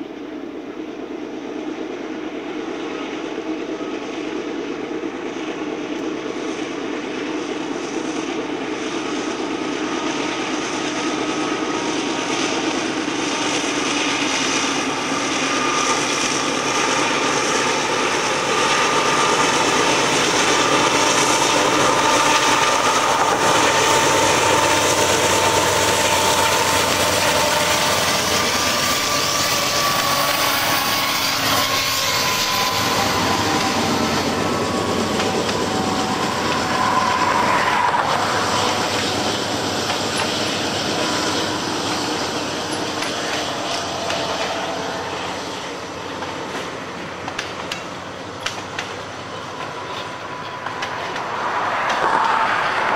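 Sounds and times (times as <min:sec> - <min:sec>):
diesel locomotive engine whine: 0:00.0 - 0:52.9
freight cars rolling on rails: 0:06.0 - 0:52.9.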